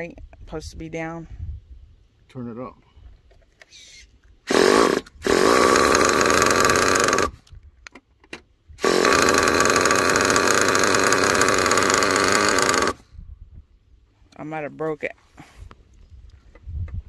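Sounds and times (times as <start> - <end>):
small nitro engine buzzing: 4.5 - 7.4, 8.8 - 13.0.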